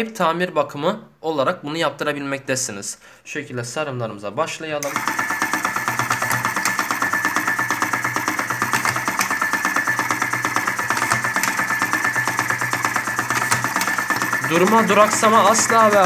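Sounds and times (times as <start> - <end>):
machine rhythmic clatter: 4.8 - 16.0
motor hum: 4.8 - 16.0.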